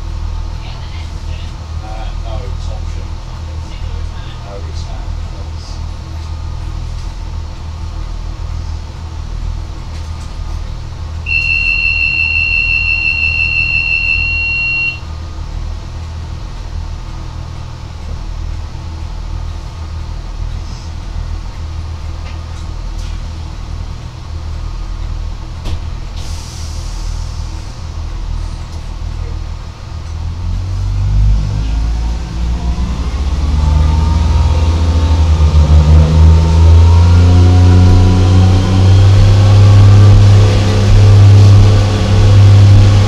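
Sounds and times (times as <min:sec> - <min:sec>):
diesel railcar rumbling: 0:00.0 - 0:43.0
high electronic beep: 0:11.3 - 0:15.0.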